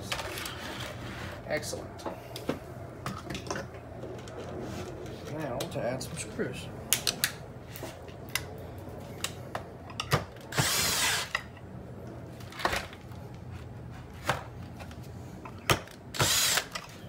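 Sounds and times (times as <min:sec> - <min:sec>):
cordless drill burst: 0:10.5 - 0:11.3, 0:16.2 - 0:16.8.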